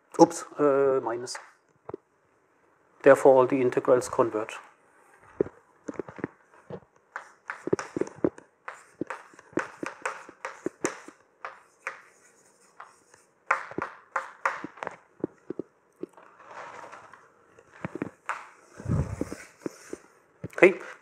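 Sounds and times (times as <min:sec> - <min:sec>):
footsteps: 0:05.2 - 0:06.9, 0:07.5 - 0:11.6, 0:14.6 - 0:17.1, 0:17.7 - 0:18.2, 0:18.8 - 0:20.8
chalk writing on a blackboard: 0:07.1 - 0:14.8, 0:19.2 - 0:20.0.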